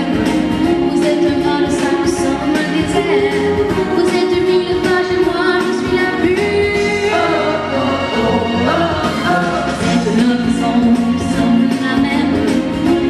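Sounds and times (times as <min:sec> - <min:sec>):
girl singing into microphone: 0:00.9 - 0:06.9.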